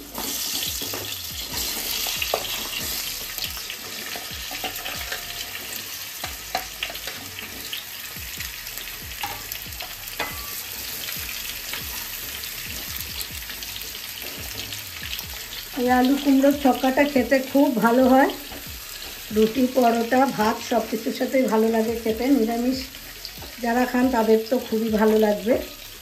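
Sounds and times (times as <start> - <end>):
vegetables sizzling in hot oil: 0.0 - 26.0
spatula knocking against pan: 8.2 - 10.6.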